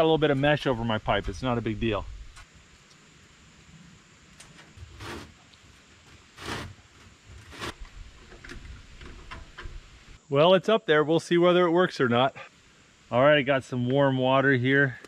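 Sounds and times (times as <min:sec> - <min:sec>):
metal scraping and rustling: 0:04.4 - 0:10.2.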